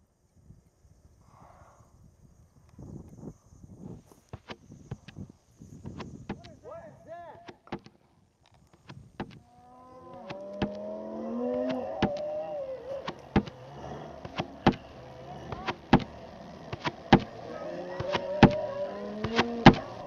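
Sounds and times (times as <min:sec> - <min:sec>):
creature groan: 0:09.8 - 0:14.6
heavy footstep thuds: 0:15.4 - 0:17.4.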